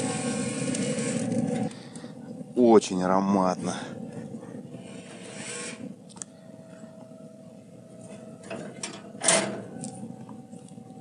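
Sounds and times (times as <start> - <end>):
faint steady hum: 0.0 - 11.0
rustling and scraping: 4.1 - 5.9.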